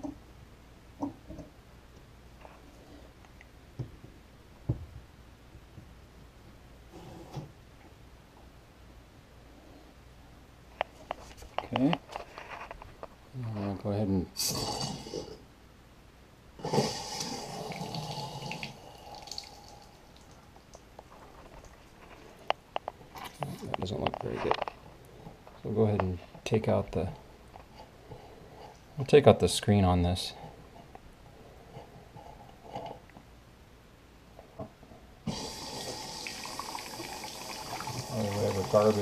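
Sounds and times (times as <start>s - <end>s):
faucet water running into sink: 17.1s - 20.0s, 35.3s - 39.0s.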